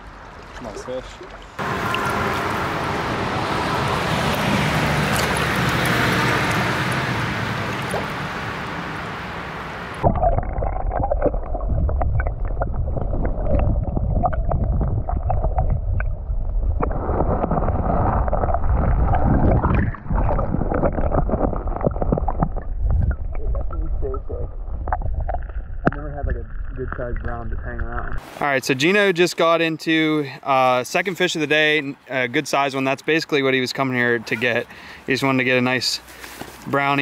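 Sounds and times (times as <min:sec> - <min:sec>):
creek water rushing and splashing: 0:00.0 - 0:15.7
underwater stream rumble and gurgling: 0:01.4 - 0:28.3.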